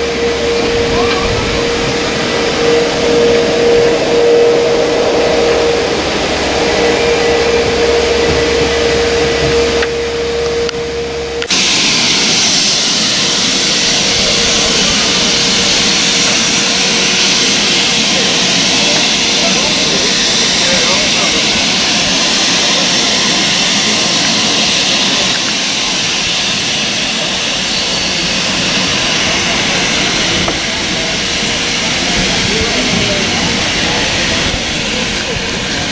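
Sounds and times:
moving train rumble: 0.0s - 35.9s
steam hissing from locomotive: 11.5s - 35.9s.

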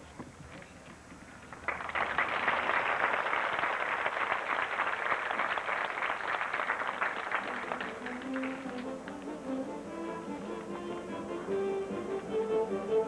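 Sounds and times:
audience applauding: 1.5s - 9.4s
orchestra brass playing: 7.4s - 13.0s.

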